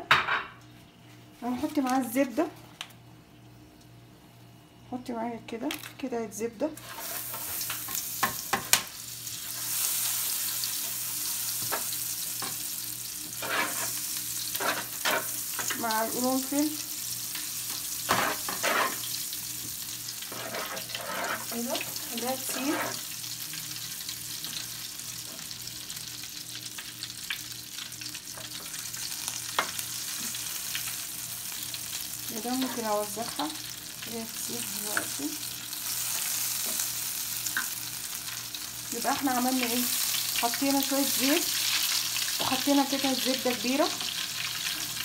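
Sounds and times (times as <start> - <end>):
butter sizzling in a pan: 6.8 - 45.0
utensil scraping a pan: 13.4 - 15.3, 18.1 - 19.1, 20.2 - 23.0.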